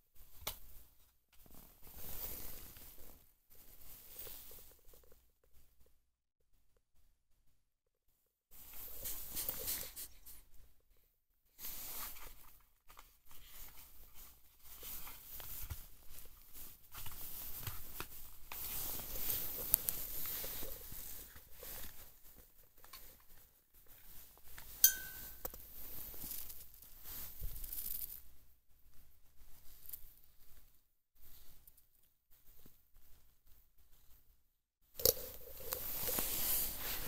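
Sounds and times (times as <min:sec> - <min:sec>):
brief metallic ring: 0:24.8 - 0:25.5.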